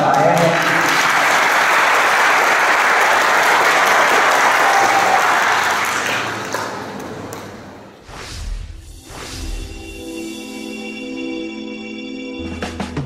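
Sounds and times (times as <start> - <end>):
congregation applauding: 0.0 - 7.8.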